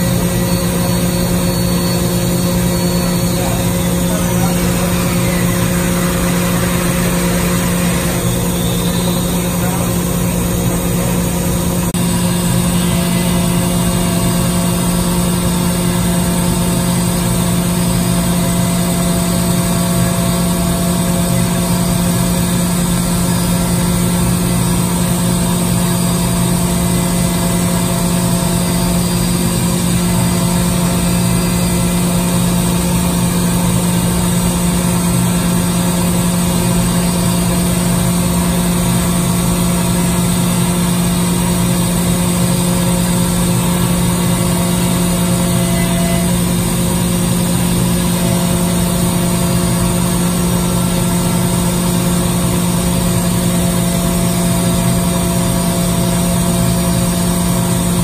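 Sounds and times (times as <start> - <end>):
machine drone with hum: 0.0 - 58.0
coolant spray hissing: 0.1 - 11.8.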